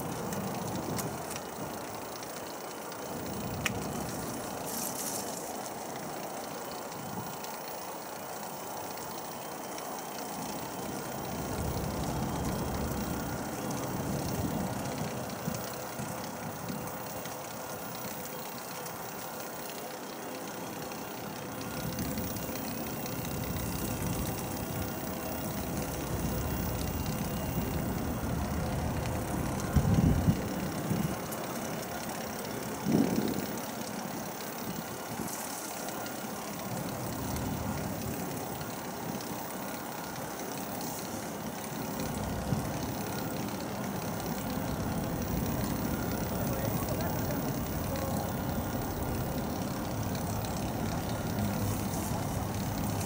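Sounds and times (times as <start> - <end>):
boat engine rumbling: 10.3 - 17.1, 20.7 - 35.2, 41.0 - 53.0.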